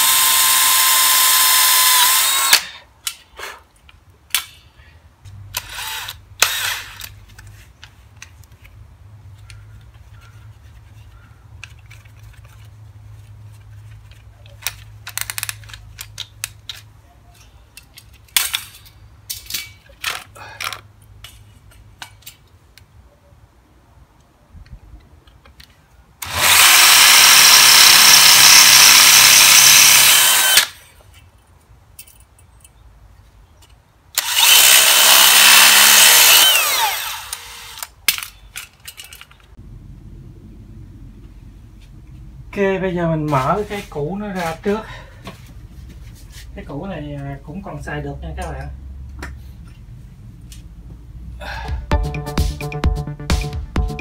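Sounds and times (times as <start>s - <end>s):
power drill boring into metal: 0.0s - 2.6s, 5.6s - 7.1s, 26.2s - 30.8s, 34.2s - 37.9s.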